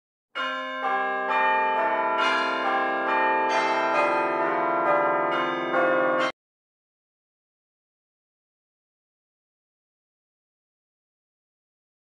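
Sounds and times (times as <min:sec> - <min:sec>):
chiming bell tune: 0:00.4 - 0:06.4.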